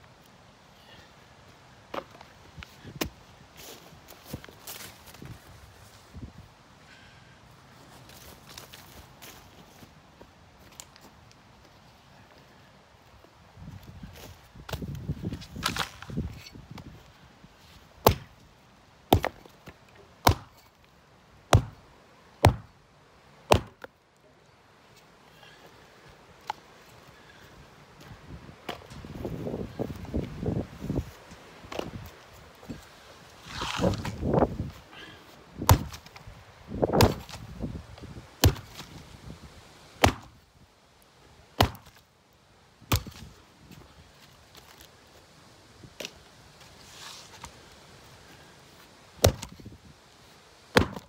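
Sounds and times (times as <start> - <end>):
axe chopping wood: 18.0 - 18.4, 19.1 - 19.5, 20.2 - 20.8, 21.5 - 21.8, 22.4 - 22.8, 23.5 - 23.9, 35.6 - 36.1, 36.9 - 37.4, 38.4 - 38.9, 40.0 - 40.4, 41.6 - 42.0, 42.9 - 43.3, 49.2 - 49.6, 50.7 - 51.0.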